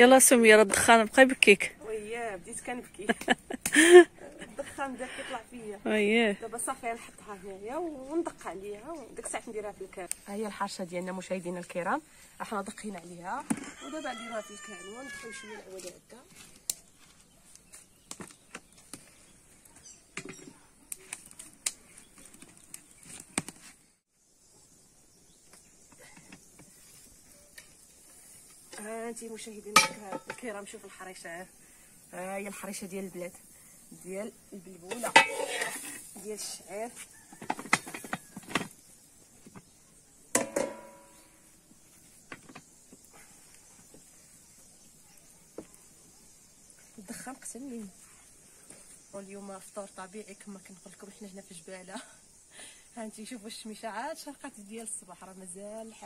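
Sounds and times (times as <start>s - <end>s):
steady hiss: 24.2s - 38.0s
metal pan and lid clanking: 29.7s - 30.4s, 34.9s - 36.0s, 40.3s - 41.3s
wood fire clicks and knocks: 37.3s - 38.8s.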